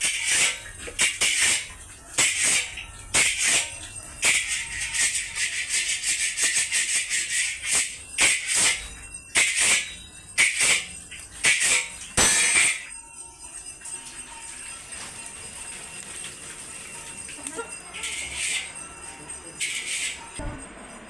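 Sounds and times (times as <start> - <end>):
metal spatula scraping iron pan: 0.0 - 8.8, 9.4 - 12.9, 19.6 - 20.4.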